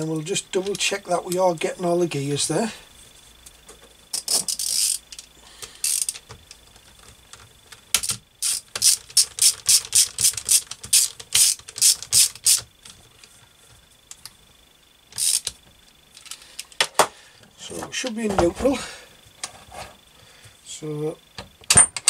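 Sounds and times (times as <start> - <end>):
socket ratchet clicking: 4.2 - 6.4, 8.0 - 12.7, 15.1 - 15.6.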